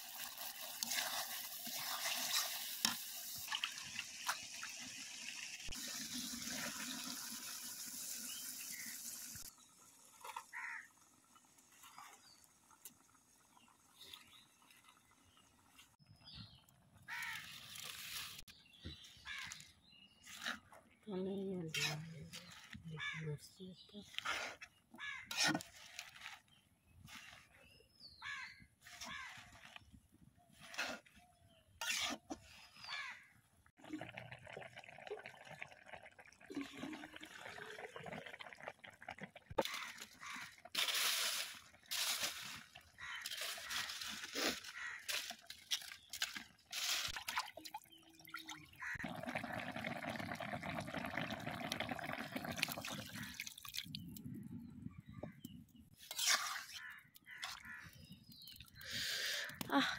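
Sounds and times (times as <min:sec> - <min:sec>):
water splashing and pouring: 0:00.0 - 0:10.8, 0:33.8 - 0:54.3.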